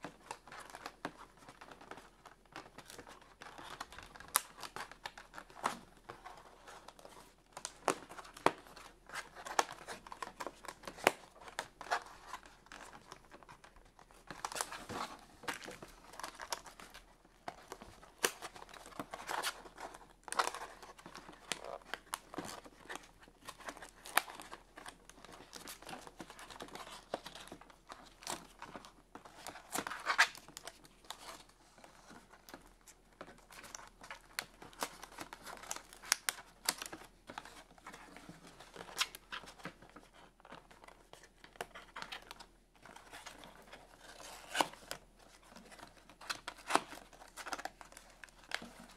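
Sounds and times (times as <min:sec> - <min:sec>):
cardboard and tape tearing: 0:44.0 - 0:44.9.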